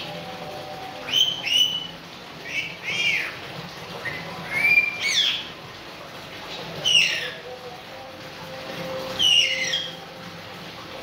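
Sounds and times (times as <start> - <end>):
parrot whistled calls: 1.0 - 3.4, 4.0 - 5.5, 6.8 - 7.4, 9.0 - 10.0.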